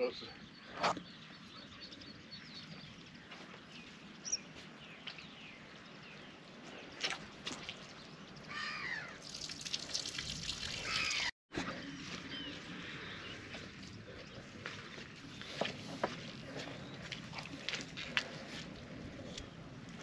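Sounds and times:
water dripping and trickling: 0:02.6 - 0:11.3
mud squelching: 0:04.6 - 0:11.3, 0:12.0 - 0:20.0.

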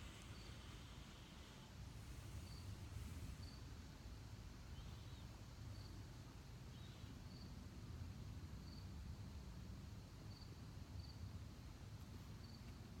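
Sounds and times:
crickets chirping: 0:00.0 - 0:03.8, 0:06.7 - 0:07.5, 0:10.2 - 0:11.2, 0:12.4 - 0:12.6
low background rumble: 0:00.0 - 0:05.1.

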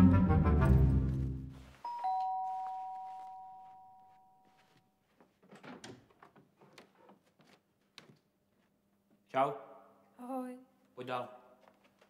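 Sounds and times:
orchestral brass music: 0:00.0 - 0:01.6
two-tone doorbell chime: 0:01.8 - 0:04.7.

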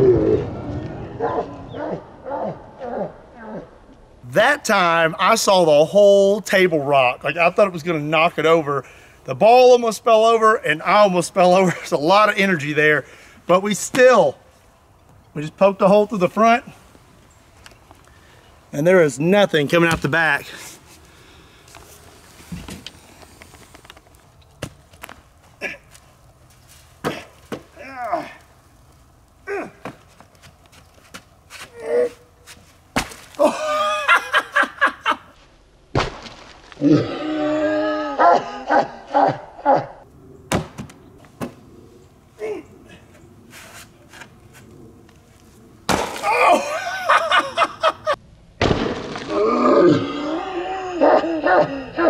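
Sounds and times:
man laughing loudly: 0:33.4 - 0:35.4, 0:38.2 - 0:40.0, 0:46.4 - 0:48.2
man grunting with effort: 0:36.8 - 0:40.0, 0:49.3 - 0:52.0
man whooping: 0:46.2 - 0:46.9.

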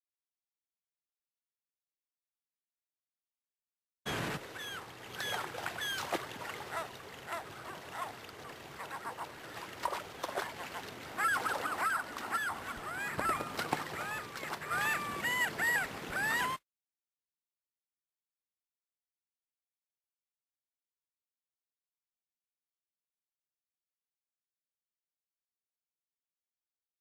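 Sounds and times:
gulls calling: 0:04.1 - 0:16.6
rushing river water: 0:04.1 - 0:16.6.

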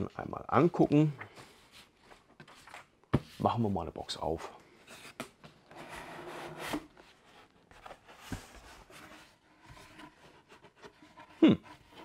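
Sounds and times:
cardboard rustling: 0:04.7 - 0:12.0.

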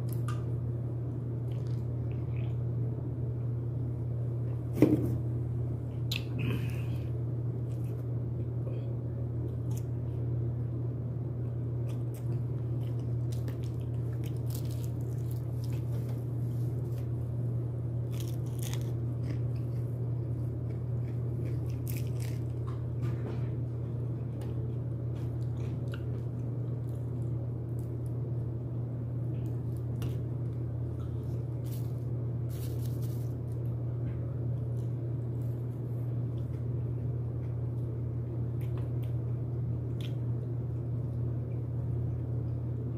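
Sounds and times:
steady low hum: 0:00.0 - 0:42.9
person chewing crunchy chicken: 0:11.8 - 0:17.1, 0:18.0 - 0:22.9, 0:24.6 - 0:28.2.

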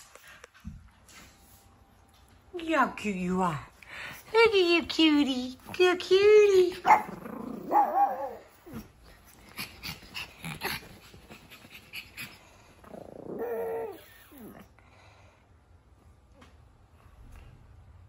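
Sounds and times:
puppy growling and whining: 0:06.7 - 0:14.8.

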